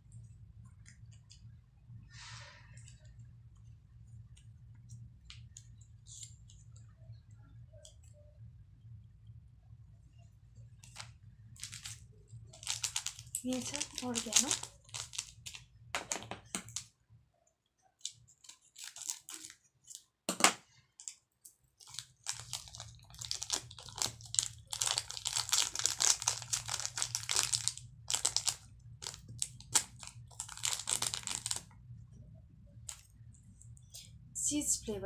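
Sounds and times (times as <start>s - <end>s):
plastic sachet crinkling: 10.8s - 16.9s, 18.0s - 20.1s, 21.8s - 31.7s.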